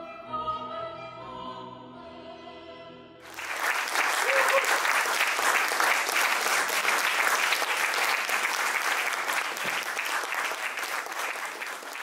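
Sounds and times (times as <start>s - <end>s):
audience applauding: 3.2s - 12.0s.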